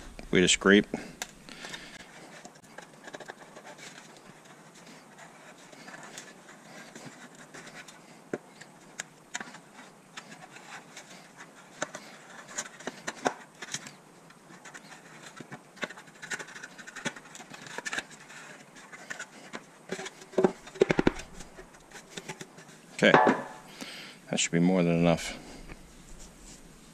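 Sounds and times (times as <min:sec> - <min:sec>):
knocks of metal cover: 0:23.1 - 0:23.6.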